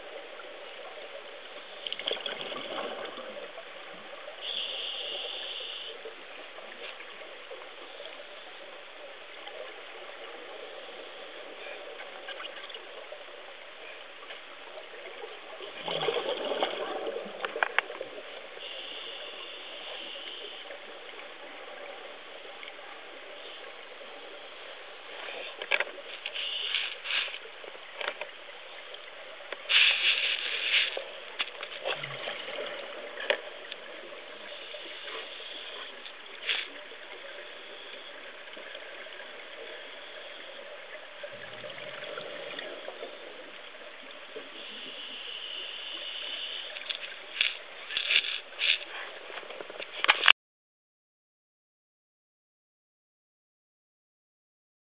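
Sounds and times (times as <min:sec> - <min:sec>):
exhaled bubbles rushing: 0:15.6 - 0:17.5.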